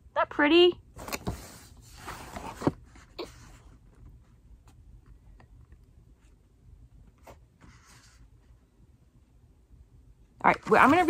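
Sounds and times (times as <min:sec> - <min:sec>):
paper card rustling: 0:10.5 - 0:11.0.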